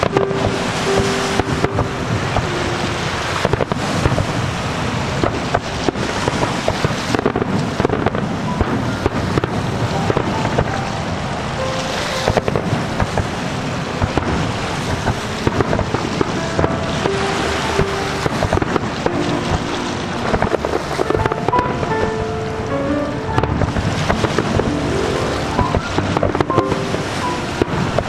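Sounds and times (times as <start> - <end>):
fireworks bangs and crackles: 0.0 - 28.0.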